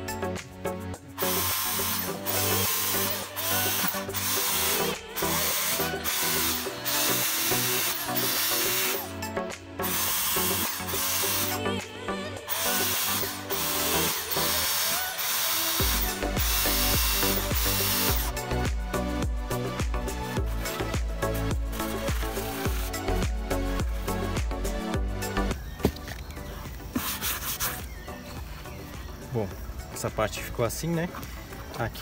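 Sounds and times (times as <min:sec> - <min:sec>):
background music: 0:00.0 - 0:32.0
electric drill boring plastic: 0:01.2 - 0:09.2, 0:09.8 - 0:18.4, 0:20.4 - 0:24.1.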